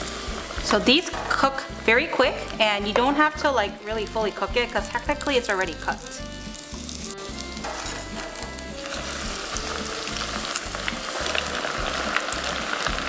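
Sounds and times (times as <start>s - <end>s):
food deep-frying in oil: 0.0s - 13.0s.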